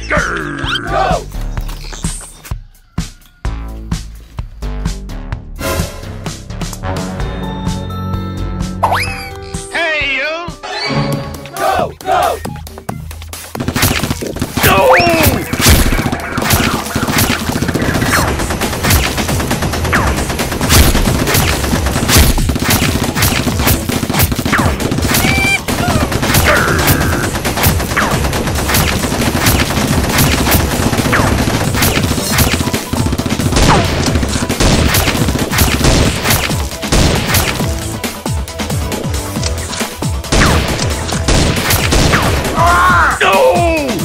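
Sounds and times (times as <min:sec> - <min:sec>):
background music: 0:00.0 - 0:01.7, 0:02.5 - 0:44.0
rapid gunshots: 0:13.5 - 0:38.7, 0:39.4 - 0:42.8.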